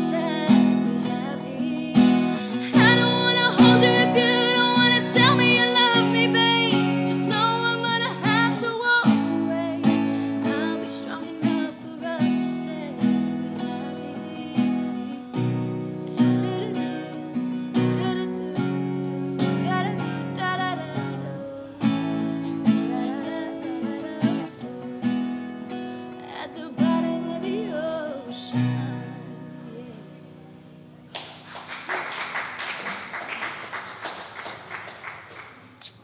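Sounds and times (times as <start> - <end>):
woman singing: 0.0 - 30.5
acoustic guitar strumming: 0.0 - 31.5
small audience applause: 31.1 - 36.0.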